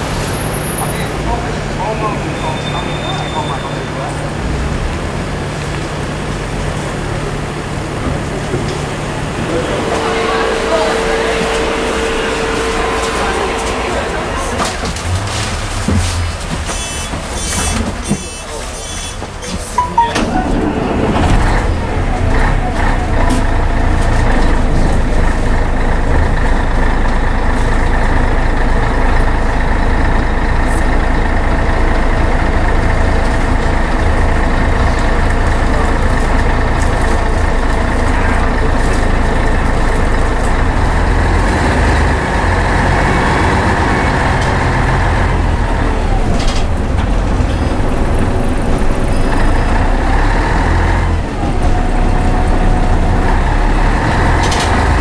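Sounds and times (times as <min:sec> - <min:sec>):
bus engine drone: 0:00.0 - 0:55.0.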